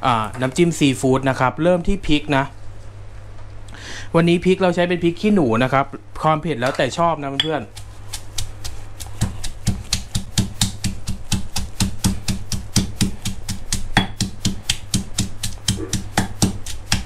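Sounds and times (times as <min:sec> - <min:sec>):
pestle pounding in stone mortar: 0:07.4 - 0:17.0.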